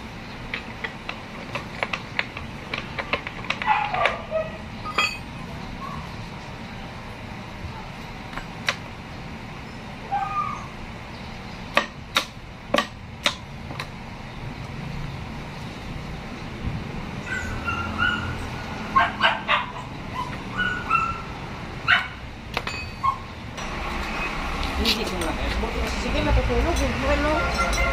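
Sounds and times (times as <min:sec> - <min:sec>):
dog yipping: 0:03.6 - 0:05.1, 0:10.1 - 0:10.7, 0:17.2 - 0:22.2, 0:23.0 - 0:23.3
metallic clinks of steel gears: 0:04.8 - 0:05.4.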